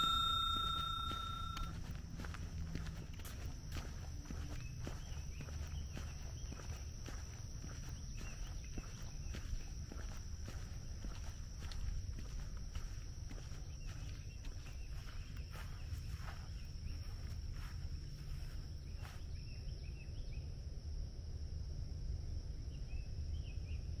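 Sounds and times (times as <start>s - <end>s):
bird chirps: 0.0s - 1.7s
footsteps crunching on dirt: 0.0s - 19.5s.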